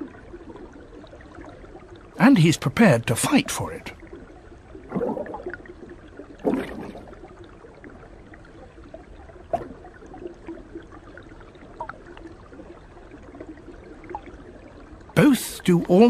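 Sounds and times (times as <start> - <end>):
creek water trickling: 0.0 - 16.0
water splash: 4.9 - 5.7, 6.4 - 7.2.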